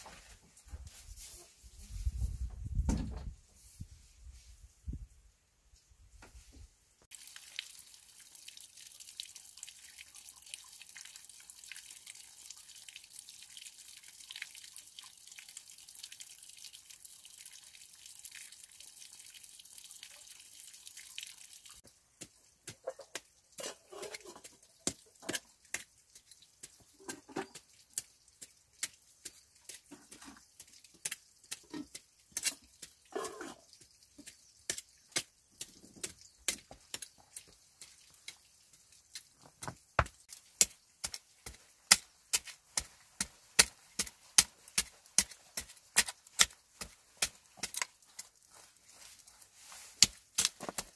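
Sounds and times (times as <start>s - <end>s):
hand tool digging in stony earth: 22.2s - 37.5s, 40.2s - 50.9s.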